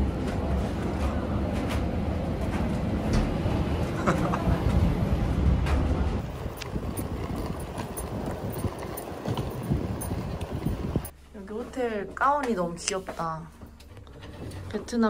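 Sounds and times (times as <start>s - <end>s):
moving vehicle rumble: 0.0s - 11.1s.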